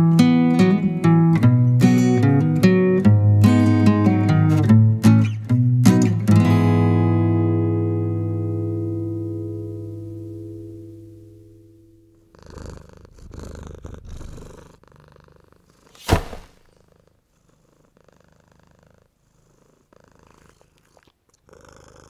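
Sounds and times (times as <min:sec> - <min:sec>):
cat purring: 0:09.2 - 0:16.0, 0:16.6 - 0:22.0
short sharp noise: 0:16.0 - 0:16.7.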